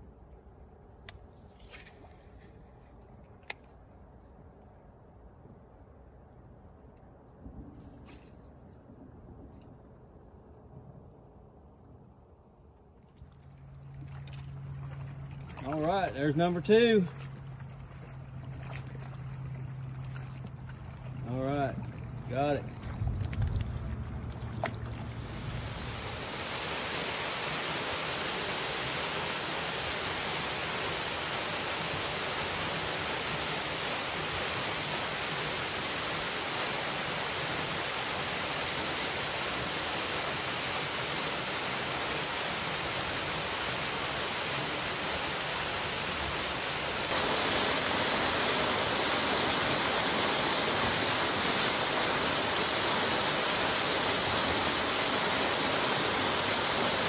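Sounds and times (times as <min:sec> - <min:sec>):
waterfall splashing into lake: 0:18.5 - 0:57.0.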